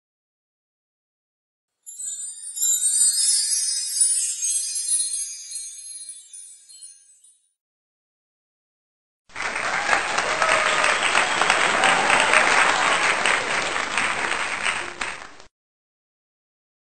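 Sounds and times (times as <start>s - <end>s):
crowd applause: 9.3s - 15.5s.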